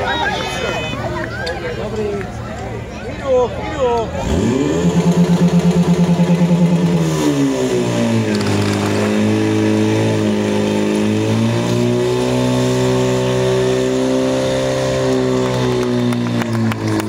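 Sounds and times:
pump engine running: 4.6s - 7.4s, 8.0s - 10.0s.

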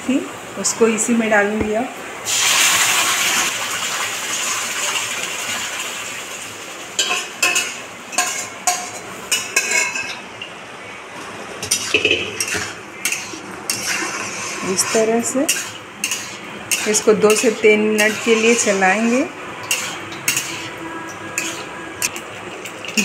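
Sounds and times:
food sizzling in hot oil: 2.2s - 10.0s, 11.6s - 22.1s
metal spatula clinking and scraping: 7.0s - 10.2s, 11.6s - 20.7s, 21.4s - 21.7s.

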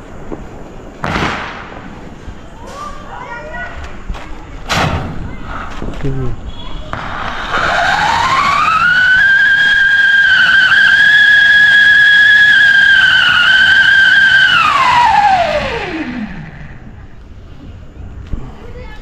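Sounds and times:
firework hissing: 4.9s - 17.5s
firework whistling: 6.4s - 17.1s.

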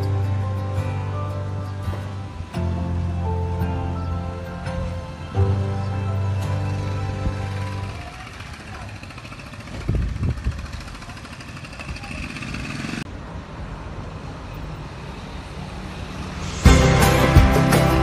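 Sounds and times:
background music: 0.0s - 8.2s, 16.4s - 18.0s
street traffic: 0.0s - 18.0s
vehicle passing rumble: 0.0s - 18.0s.

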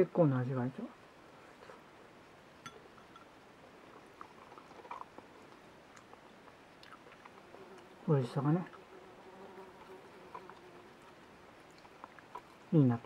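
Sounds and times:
faint chewing: 3.0s - 8.0s, 8.6s - 12.8s.

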